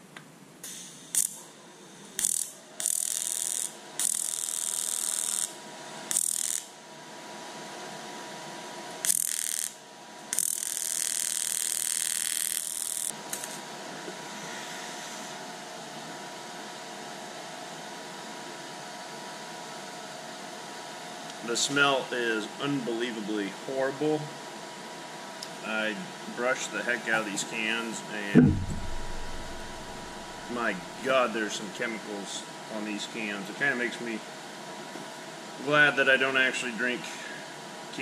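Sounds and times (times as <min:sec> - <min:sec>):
welding arc crackling: 0:02.2 - 0:06.7, 0:09.0 - 0:13.6
fan hum: 0:26.4 - 0:31.3.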